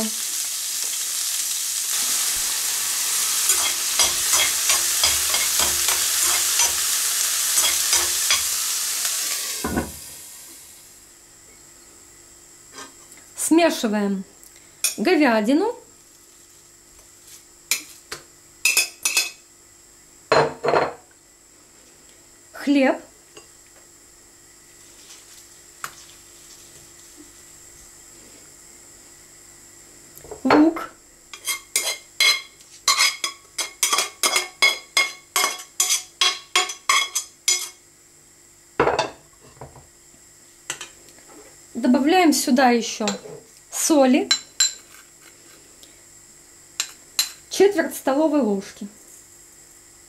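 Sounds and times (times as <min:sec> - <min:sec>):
spoon tapping frying pan: 0:03.5 - 0:06.9, 0:07.6 - 0:08.5, 0:31.4 - 0:37.7.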